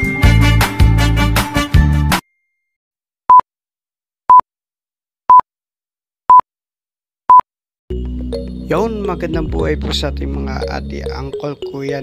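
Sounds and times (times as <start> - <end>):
intro music: 0.0 - 2.1, 7.9 - 12.0
countdown beeps: 10.5 - 12.0.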